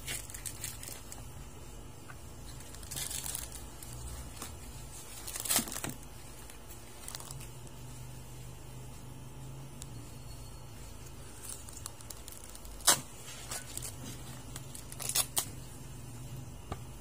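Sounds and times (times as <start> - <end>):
low steady hum: 0.0 - 17.0
corn husks tearing: 11.4 - 15.5.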